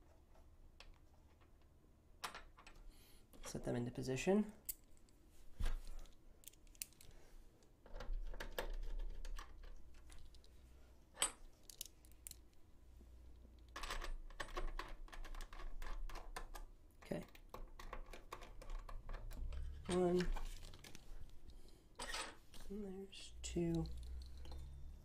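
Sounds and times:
small parts clicking and rattling: 0:04.6 - 0:05.2, 0:05.8 - 0:12.7, 0:13.3 - 0:22.8, 0:23.4 - 0:25.0.

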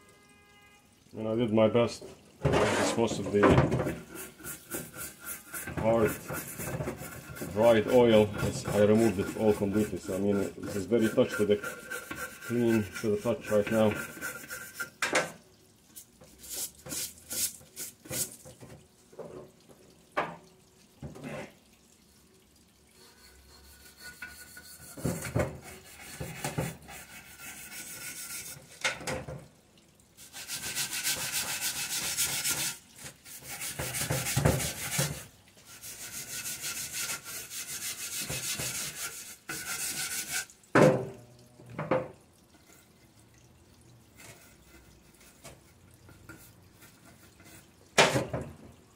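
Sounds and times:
scraping dried oil off metal: 0:02.5 - 0:15.0, 0:23.0 - 0:28.7, 0:35.8 - 0:40.5
scrubbing hiss: 0:03.9 - 0:15.0.

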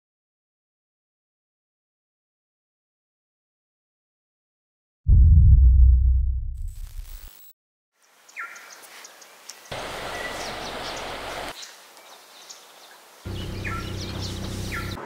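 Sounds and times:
low rumble: 0:05.1 - 0:07.0
bird chirps: 0:08.3 - 0:12.6, 0:13.3 - 0:15.0
river water rushing: 0:09.7 - 0:11.5
vehicle hum with road noise: 0:13.3 - 0:15.0.

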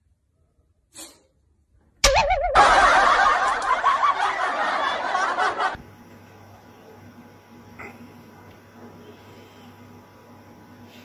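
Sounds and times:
loud laughter: 0:02.1 - 0:05.8.

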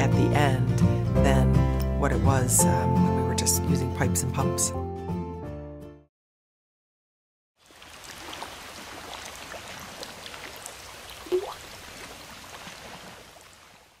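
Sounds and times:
dripping trickling water: 0:07.6 - 0:13.7
water drop plink: 0:11.3 - 0:11.6.

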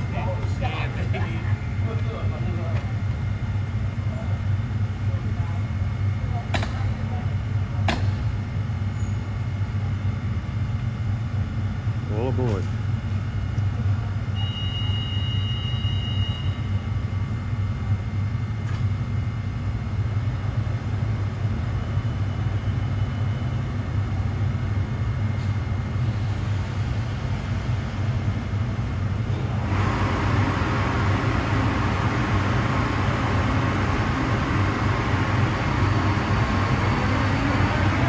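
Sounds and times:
locomotive low hum: 0:00.0 - 0:38.0
brief high tone: 0:14.4 - 0:16.8.

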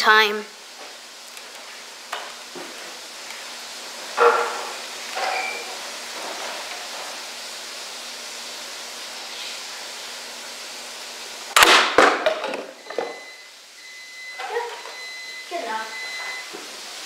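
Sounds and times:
toy dart blaster firing: 0:11.6 - 0:12.2
plastic bottles clattering on table: 0:11.6 - 0:13.2.

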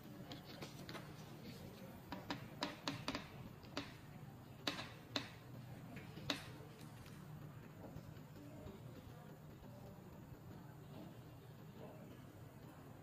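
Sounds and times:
steady low hum: 0:00.0 - 0:13.0
plastic clicks and taps: 0:02.1 - 0:07.2.

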